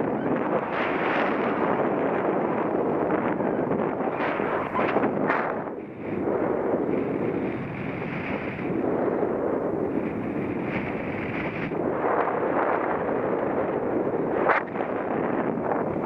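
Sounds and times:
sharp crackle: 0.0s - 16.0s
wind buffeting microphone: 0.0s - 16.0s.

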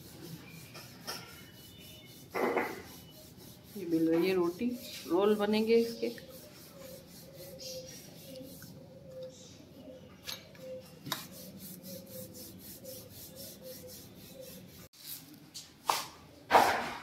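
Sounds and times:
rolling pin rubbing dough: 0.0s - 8.8s, 11.1s - 14.9s.

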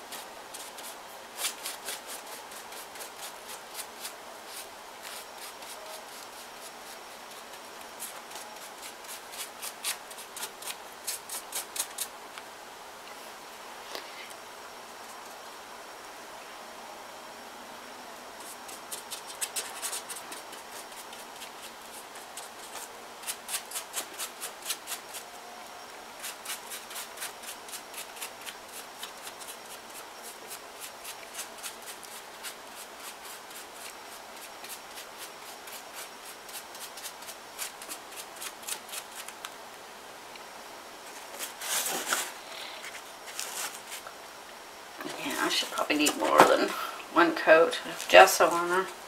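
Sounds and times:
paintbrush scrubbing on paper: 0.1s - 12.1s, 26.2s - 39.3s.

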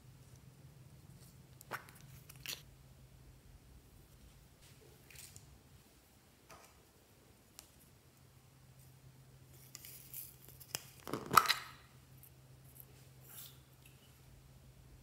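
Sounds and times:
plastic lid popping open: 11.0s - 11.8s.

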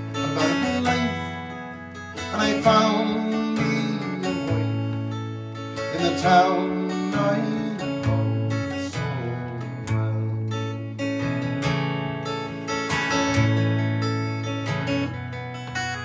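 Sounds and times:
acoustic guitar strummed slowly: 0.0s - 16.0s.

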